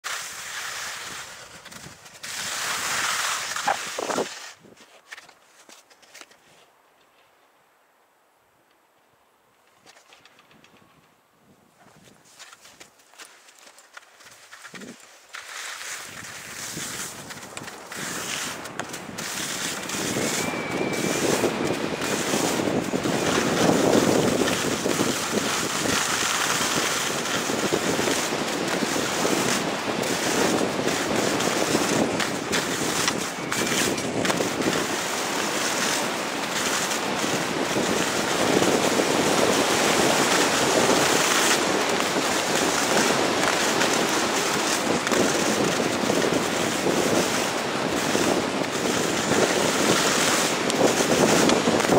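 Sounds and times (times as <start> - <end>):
skis sliding on packed snow: 0.0 - 6.7, 11.8 - 51.9
wind on microphone: 1.0 - 4.8, 16.0 - 51.9.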